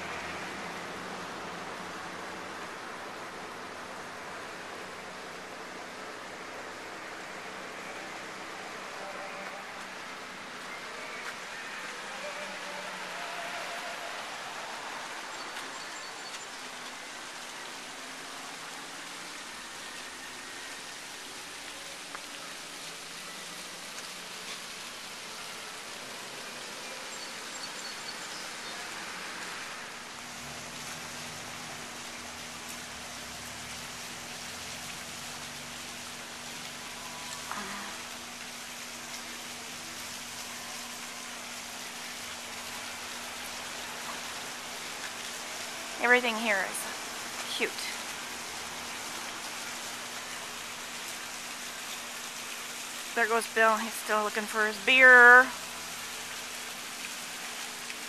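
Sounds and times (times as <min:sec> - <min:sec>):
outdoor ambience hiss: 0:00.0 - 0:58.0.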